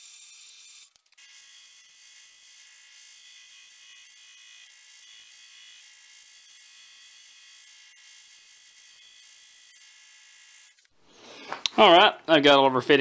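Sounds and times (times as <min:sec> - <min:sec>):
belt grinder grinding metal: 0:00.0 - 0:10.9.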